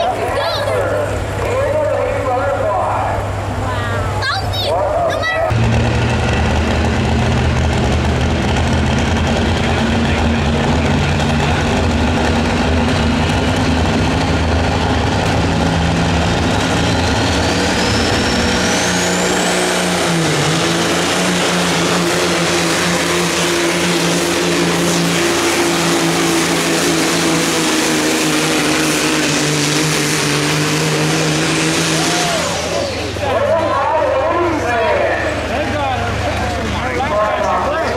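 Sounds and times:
diesel engine running under load: 0.0s - 37.9s.

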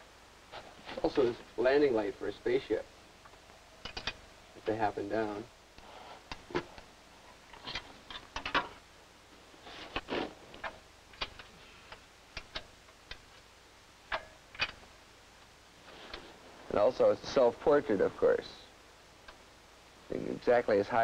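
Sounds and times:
irregular clicks and knocks: 3.2s - 4.2s, 7.5s - 8.8s, 9.9s - 14.9s.

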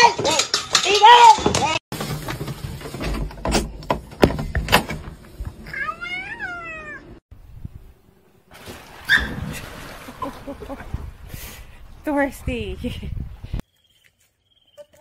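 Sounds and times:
cat meowing: 5.7s - 7.2s.

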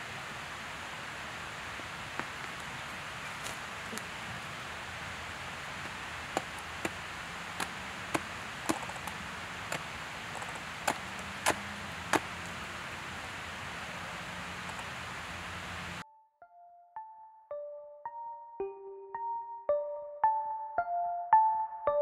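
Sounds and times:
faint hiss: 0.0s - 16.0s.

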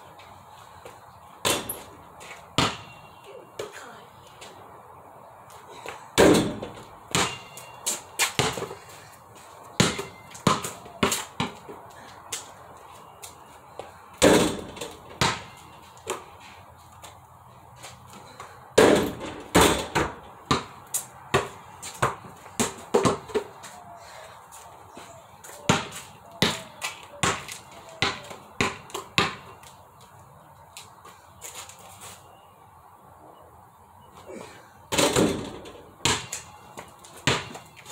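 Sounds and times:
basketball bouncing: 2.6s - 3.0s, 6.2s - 8.8s, 9.8s - 11.8s, 14.2s - 16.2s, 18.8s - 23.5s, 25.7s - 29.6s, 34.9s - 37.8s
basketball hitting backboard: 6.2s - 7.6s, 9.8s - 11.6s, 14.2s - 15.6s, 18.8s - 20.7s, 34.9s - 36.3s.

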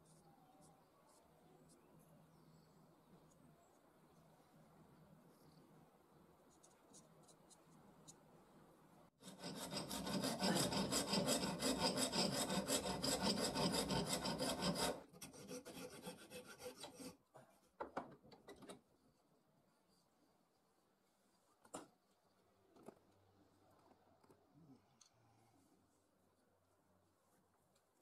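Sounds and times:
file rasping on wood: 9.2s - 17.2s.

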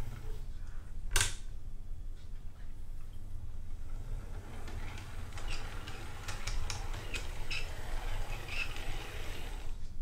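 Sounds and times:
wheels clicking on rails: 3.7s - 9.8s
model steam locomotive rumbling: 4.3s - 9.7s.

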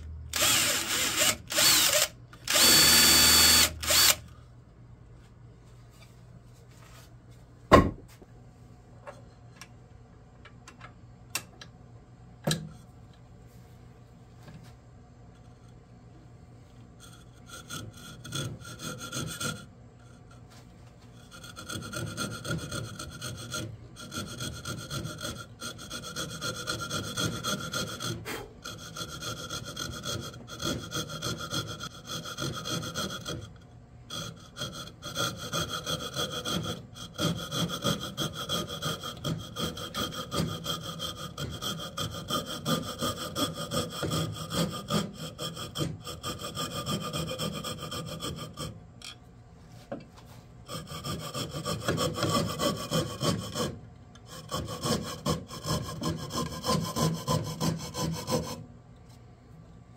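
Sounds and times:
hand saw rasping through wood: 0.3s - 4.2s, 17.0s - 19.7s, 21.2s - 48.8s, 50.6s - 58.6s.

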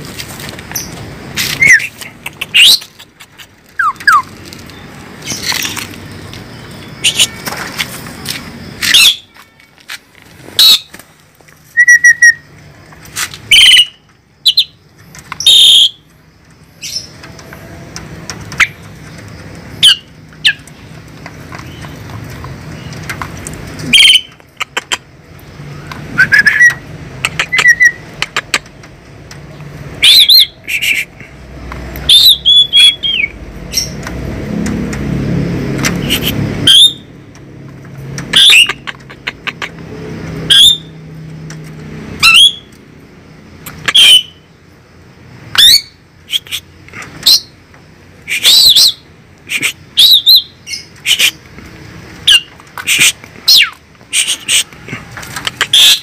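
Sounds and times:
starling calling: 0.7s - 7.6s, 8.8s - 9.4s, 10.5s - 11.0s, 11.7s - 12.4s, 13.4s - 16.1s, 19.8s - 20.8s, 23.8s - 25.1s, 29.9s - 31.4s, 32.0s - 34.0s, 35.9s - 37.1s, 38.3s - 39.8s, 40.4s - 41.0s, 42.2s - 42.8s, 43.7s - 44.5s, 45.5s - 47.6s, 48.2s - 51.5s, 52.2s - 56.0s.

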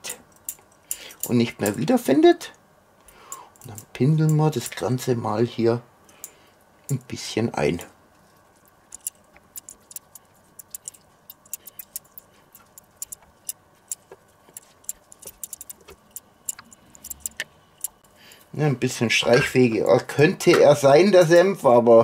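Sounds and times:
basting brush clicking on tub and tray: 8.9s - 18.0s.

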